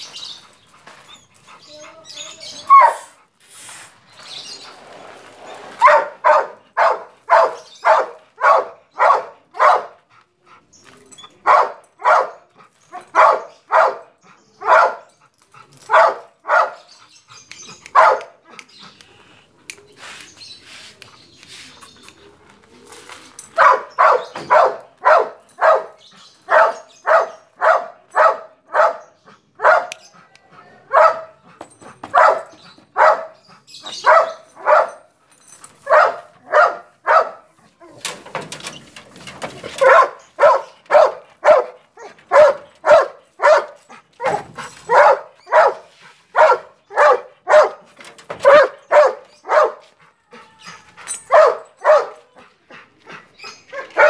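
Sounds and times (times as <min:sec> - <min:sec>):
dog barking: 0:05.8 - 0:10.0, 0:11.4 - 0:12.4, 0:13.1 - 0:15.1, 0:15.9 - 0:16.9, 0:17.9 - 0:18.4, 0:23.6 - 0:25.9, 0:26.5 - 0:30.1, 0:30.9 - 0:31.4, 0:32.1 - 0:35.0, 0:35.8 - 0:37.5, 0:39.8 - 0:49.9, 0:51.2 - 0:52.3.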